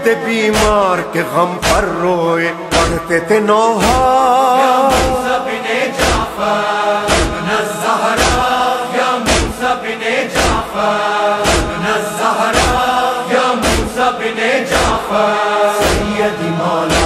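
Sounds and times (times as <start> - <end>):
voices chanting in chorus: 3.8 - 17.0.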